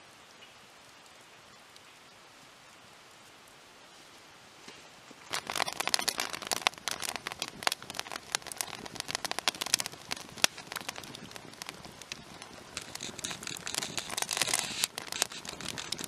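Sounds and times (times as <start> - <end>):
faint steady hiss: 0.0 - 16.0
campfire crackling and popping: 5.2 - 16.0.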